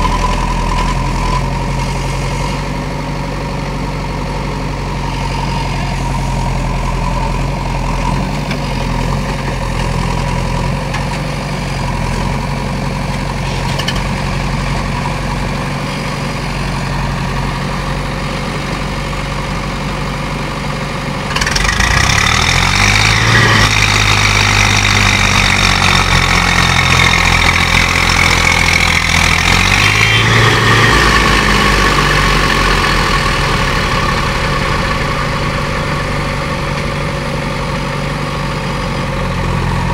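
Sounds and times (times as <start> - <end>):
diesel engines running: 0.0 - 39.9
engine revving under load: 21.3 - 39.9.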